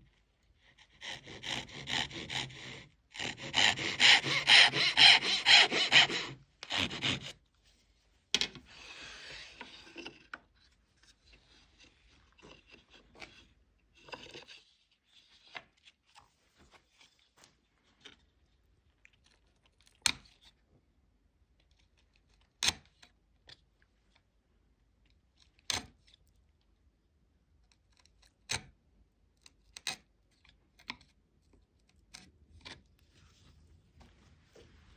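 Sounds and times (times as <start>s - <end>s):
chisel scraping wood: 0.7s - 7.4s
hand saw cutting wood: 0.8s - 7.4s.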